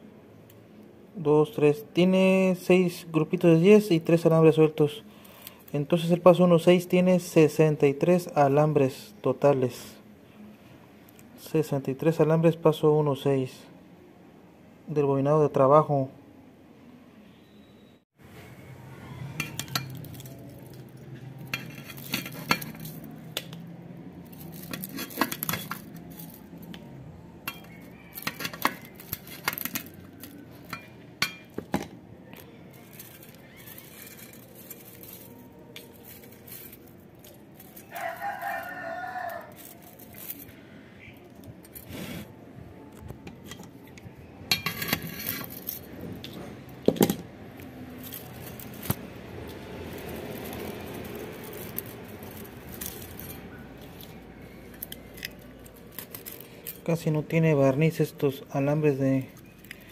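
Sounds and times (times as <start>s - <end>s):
rooster crowing: 18.3s - 19.8s, 27.4s - 29.3s, 37.8s - 40.0s
wire clicking and clinking: 19.4s - 26.8s, 27.4s - 40.6s, 43.3s - 57.3s.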